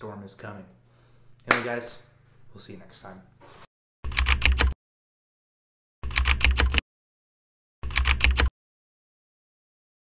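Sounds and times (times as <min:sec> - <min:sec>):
rapid keystroke clicks: 0:04.1 - 0:04.8, 0:06.0 - 0:06.8, 0:07.8 - 0:08.5.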